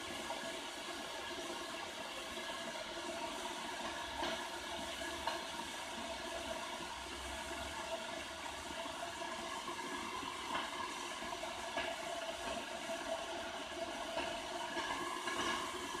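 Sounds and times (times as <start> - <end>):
electric kettle hissing: 0.0 - 16.0
faint kettle ticks: 3.7 - 7.9, 10.2 - 16.0.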